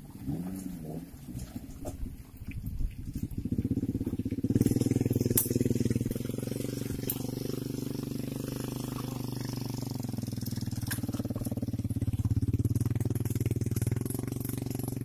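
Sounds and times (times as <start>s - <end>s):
truck engine revving under load: 3.3s - 15.0s.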